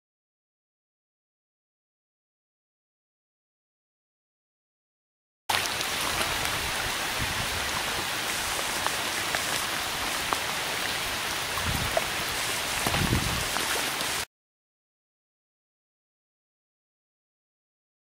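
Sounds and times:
steady rain falling: 5.5s - 14.3s.

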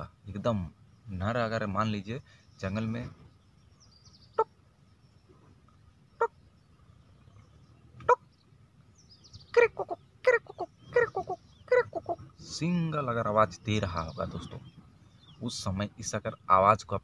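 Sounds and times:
man imitating bird call: 9.4s - 12.8s.

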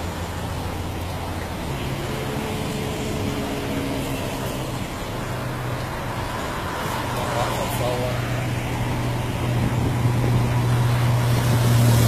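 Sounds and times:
traffic noise: 0.0s - 12.0s.

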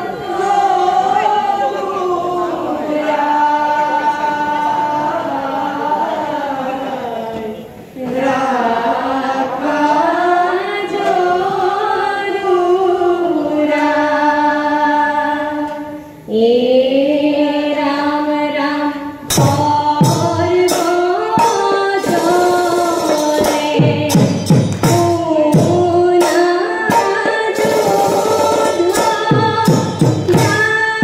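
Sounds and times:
group chanting devotional song: 0.0s - 31.0s
drum strokes: 19.3s - 31.0s.

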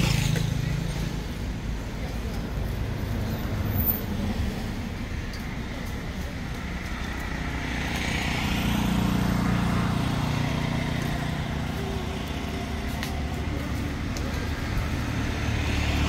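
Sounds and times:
motor vehicle passing: 6.1s - 16.0s.

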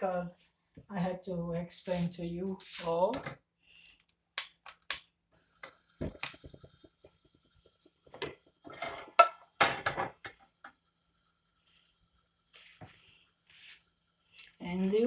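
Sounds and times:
cookware and utensils clinking: 8.1s - 10.7s.

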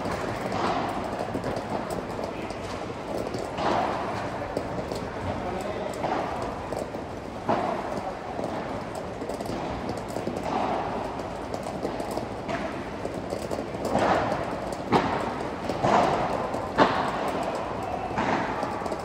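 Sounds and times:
padel ball struck by paddles: 0.0s - 2.0s, 11.8s - 19.0s
ball bouncing on court: 0.0s - 19.0s.

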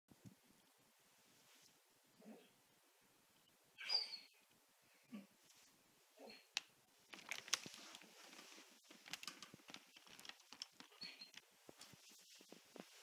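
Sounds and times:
puppy squeak: 3.8s - 4.4s.

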